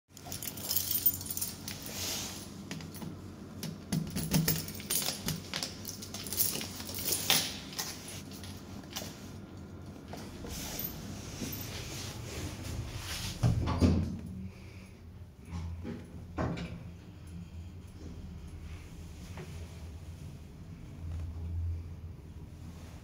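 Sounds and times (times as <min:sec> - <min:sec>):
keys jangling against metal panel: 0:00.2 - 0:01.9, 0:02.7 - 0:09.0.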